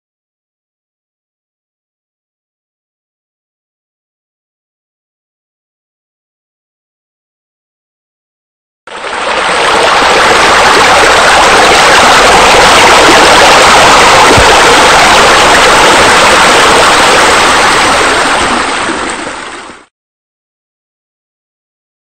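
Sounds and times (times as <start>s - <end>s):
falling and splashing water: 8.9s - 19.9s.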